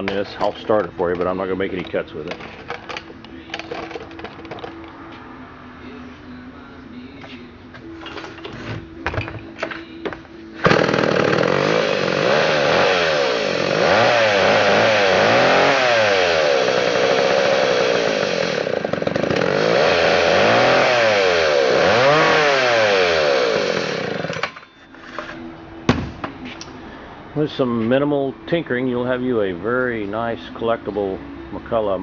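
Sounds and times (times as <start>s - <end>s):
chainsaw engine revving: 10.6s - 24.5s
chainsaw clattering: 10.6s - 24.6s.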